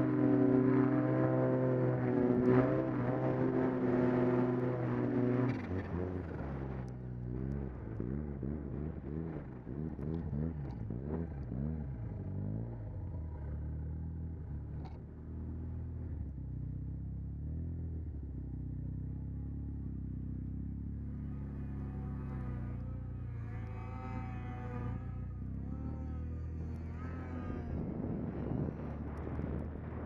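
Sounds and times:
snowmobile engine revving: 21.0 - 30.0.

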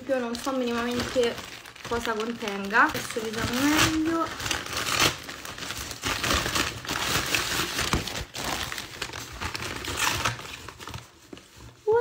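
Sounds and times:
packaging crinkling and rustling: 0.0 - 12.0.

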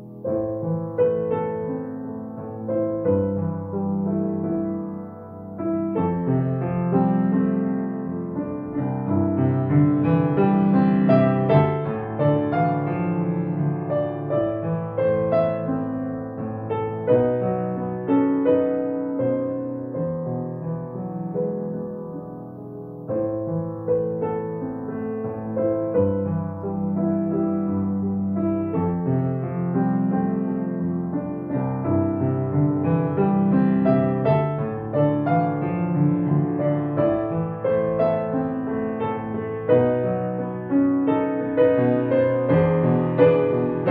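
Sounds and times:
solo piano melody: 0.0 - 43.9.

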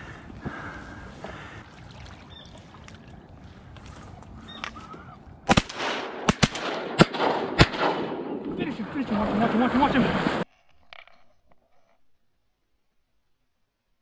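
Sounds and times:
shotgun blasts: 5.5 - 8.6.

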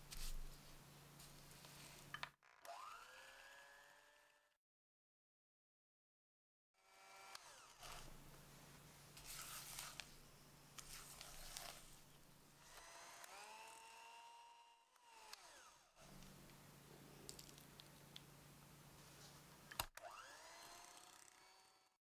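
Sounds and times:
electric hand mixer running: 2.4 - 4.6, 12.6 - 16.2, 20.0 - 22.0.

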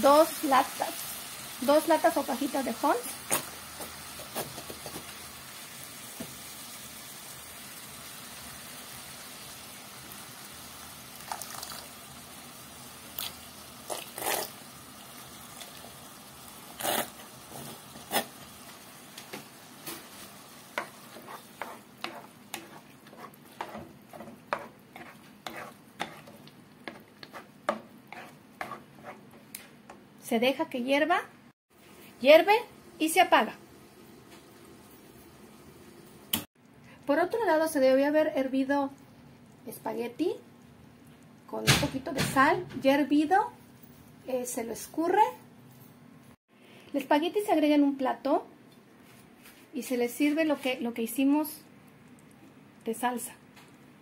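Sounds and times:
meat sizzling in a frying pan: 0.0 - 23.5
spoon scraping a pan: 13.8 - 14.6, 16.6 - 18.6, 19.8 - 30.0.

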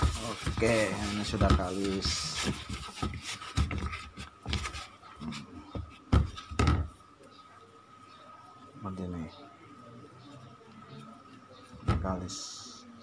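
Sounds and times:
soft thuds and knocks: 0.0 - 4.8, 5.7 - 7.0, 11.8 - 12.2
hands kneading dough: 0.0 - 7.0.

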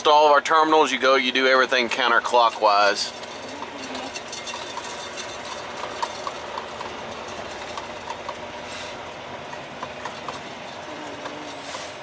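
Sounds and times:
truck engine and road rumble: 0.0 - 12.0
light clicks and rattles: 2.3 - 8.5.

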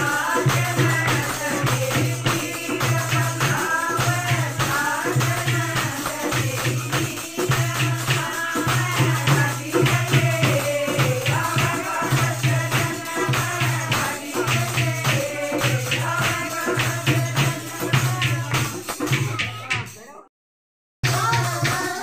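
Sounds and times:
women singing a folk song: 0.0 - 18.9, 21.1 - 22.0
jingling percussion: 0.0 - 20.2, 21.0 - 22.0
hand clapping: 21.0 - 22.0.

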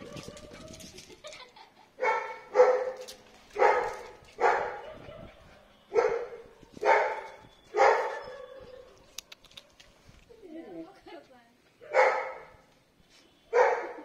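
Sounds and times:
dog barking: 2.0 - 3.0, 3.6 - 8.7, 11.8 - 12.6, 13.5 - 14.0.

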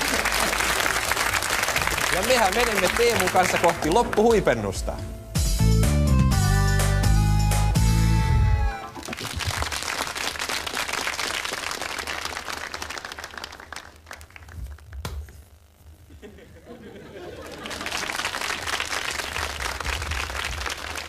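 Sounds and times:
studio audience applauding: 0.0 - 4.8, 8.7 - 14.9, 17.2 - 21.0.

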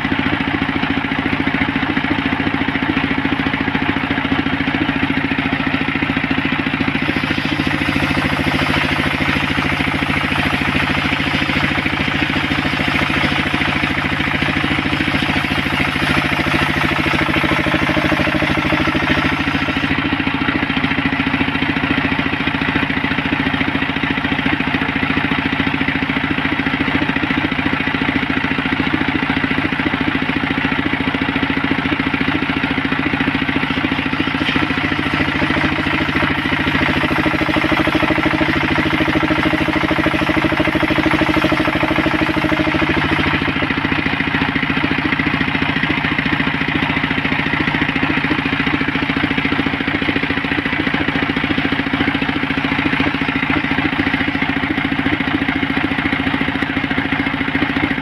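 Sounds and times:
engine chugging: 0.0 - 58.0
circular saw cutting wood: 6.5 - 20.5, 33.1 - 45.5.

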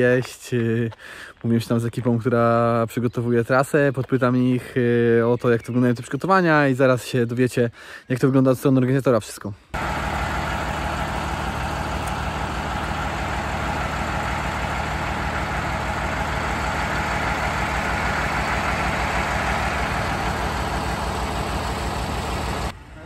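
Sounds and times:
truck engine idling: 9.8 - 23.0.

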